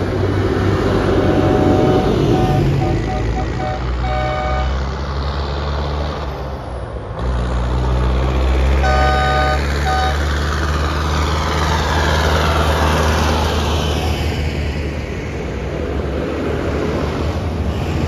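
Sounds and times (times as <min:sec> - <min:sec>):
tractor engines running: 0:00.0 - 0:18.0
horn blasts: 0:01.4 - 0:04.9, 0:08.8 - 0:10.3.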